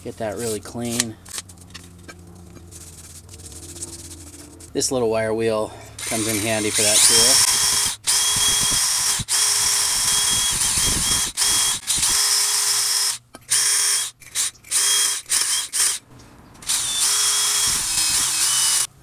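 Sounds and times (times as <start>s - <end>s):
wire brush scrubbing metal: 0.0s - 4.9s, 6.0s - 7.6s
drill motor whine: 6.0s - 16.0s, 16.6s - 18.9s.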